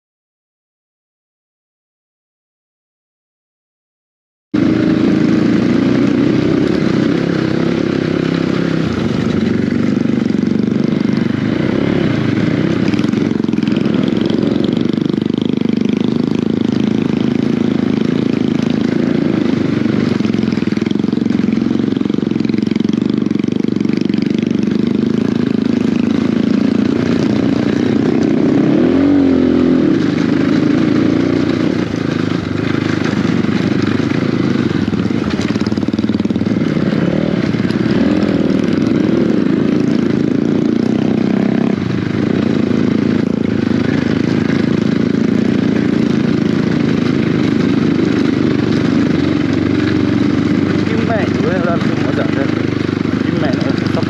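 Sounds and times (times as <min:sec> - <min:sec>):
dirt bike engine running: 0:04.6 - 0:54.0.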